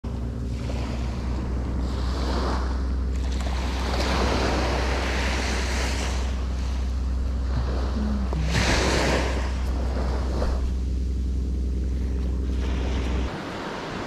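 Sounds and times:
surf waves breaking on beach: 12.6 - 14.0.

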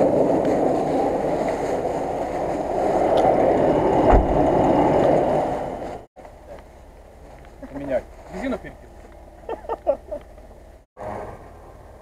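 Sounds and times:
muffled vehicle noise: 0.0 - 12.0
heavy low thump on log: 4.1 - 4.4.

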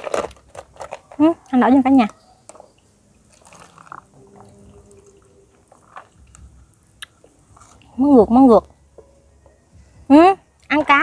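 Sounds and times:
liquid trickling into cup: 3.2 - 6.8.

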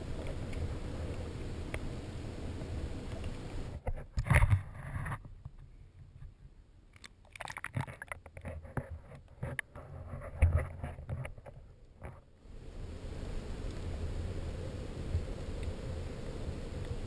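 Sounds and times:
crackles and knocks: 0.0 - 12.3
underwater water movement: 7.2 - 11.5.

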